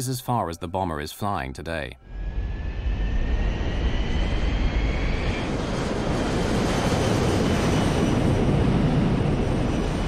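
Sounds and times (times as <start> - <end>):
jet engines at takeoff power: 2.0 - 10.0
turbine whine rising: 2.0 - 10.0.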